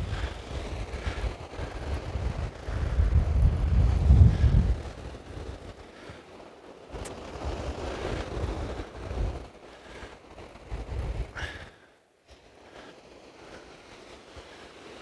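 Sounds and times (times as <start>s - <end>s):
wind buffeting microphone: 0.0s - 15.0s
small waves breaking: 4.7s - 15.0s.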